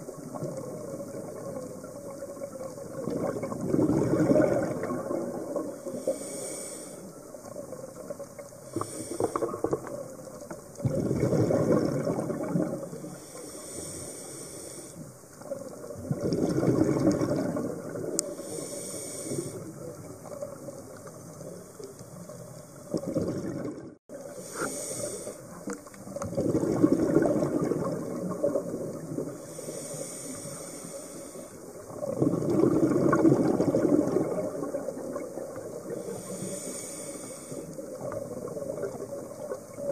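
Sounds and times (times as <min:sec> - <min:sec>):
rush of exhaled bubbles: 0:00.0 - 0:06.2, 0:07.4 - 0:13.2, 0:15.4 - 0:21.0, 0:22.8 - 0:25.4, 0:26.1 - 0:30.5, 0:31.7 - 0:39.9
regulator inhale hiss: 0:05.8 - 0:07.6, 0:08.6 - 0:10.1, 0:12.8 - 0:15.4, 0:18.2 - 0:19.9, 0:24.2 - 0:25.7, 0:29.3 - 0:31.9, 0:35.9 - 0:38.1.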